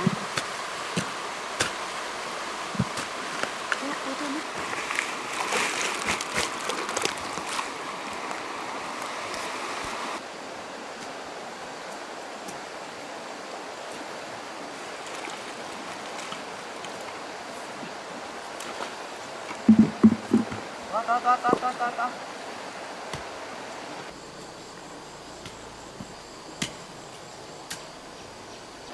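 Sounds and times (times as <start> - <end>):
splashes: 0.0 - 8.4
water rushing: 0.0 - 25.1.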